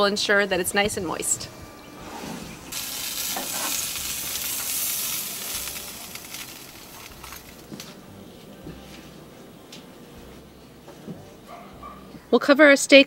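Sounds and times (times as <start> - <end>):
steak sizzling on a grill: 2.6 - 8.0.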